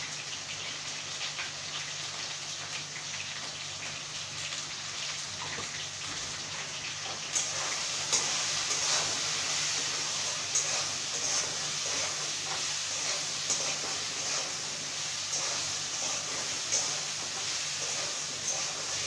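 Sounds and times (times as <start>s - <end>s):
potatoes frying in oil: 0.0s - 19.0s
metal spatula scraping wok: 7.5s - 19.0s.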